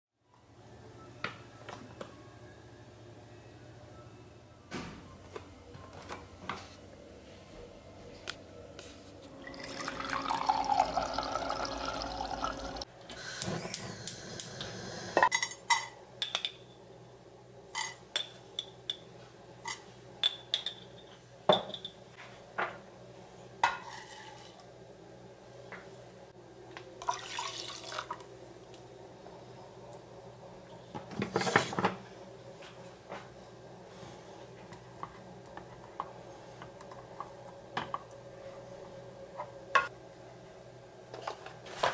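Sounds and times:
liquid pouring: 9.4s - 12.8s, 27.0s - 28.2s.

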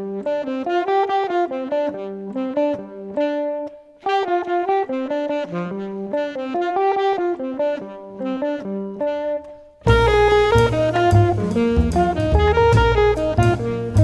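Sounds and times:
bright instrumental melody: 9.8s - 14.0s.

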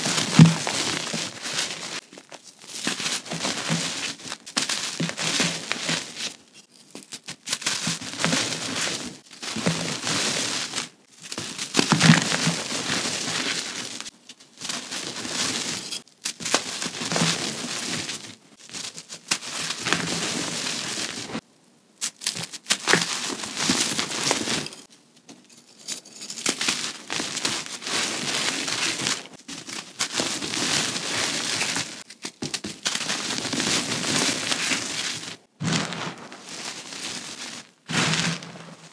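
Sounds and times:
chalk crunching and crumbling: 26.1s - 38.9s.

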